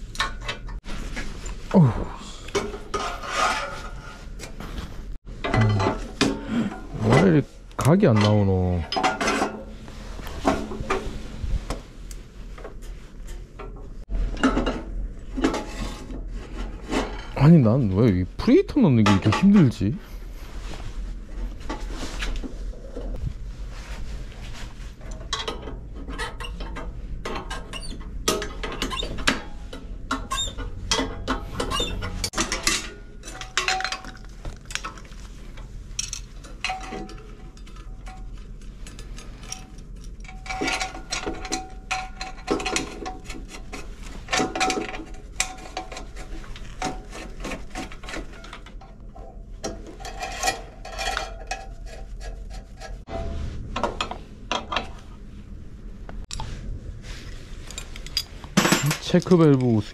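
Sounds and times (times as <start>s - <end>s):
low steady hum: 0.0s - 59.9s
metal parts clinking and knocking: 36.0s - 46.0s, 57.7s - 59.6s.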